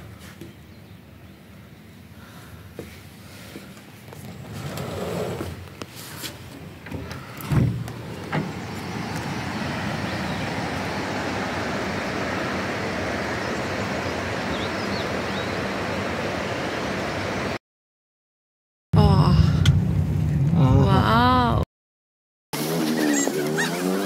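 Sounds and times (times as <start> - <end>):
rushing outdoor noise: 1.0 - 17.6.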